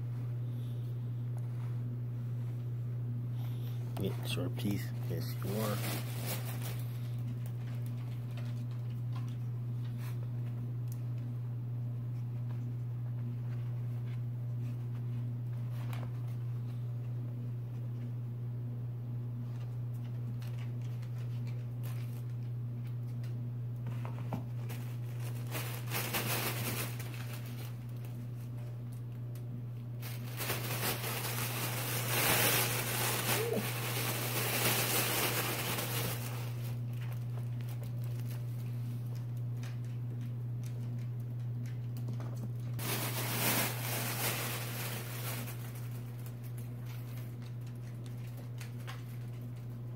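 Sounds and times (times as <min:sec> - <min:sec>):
low electrical hum: 0:00.0 - 0:49.9
fabric tunnel crinkling: 0:04.2 - 0:08.0, 0:24.7 - 0:28.2, 0:30.0 - 0:38.3, 0:42.8 - 0:46.4.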